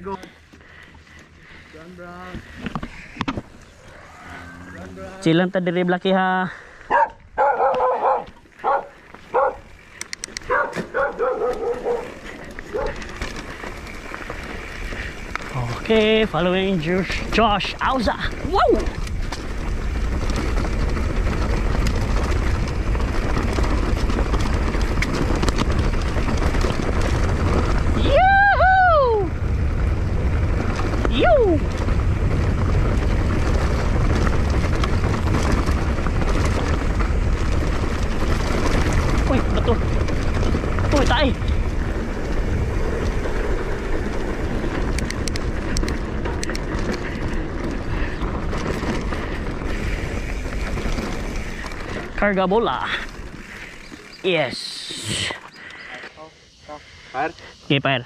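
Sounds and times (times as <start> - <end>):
bike tyres on gravel: 0.0 - 58.0
dog barking and yipping: 6.9 - 9.7, 10.4 - 13.0
bike rattling clicks: 6.9 - 28.1, 29.3 - 56.1
wind buffeting microphone: 6.9 - 54.2.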